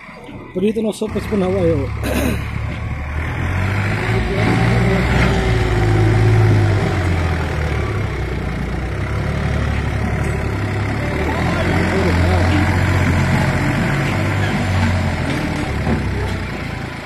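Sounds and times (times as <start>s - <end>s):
tractor diesel engine labouring: 0.0s - 17.0s.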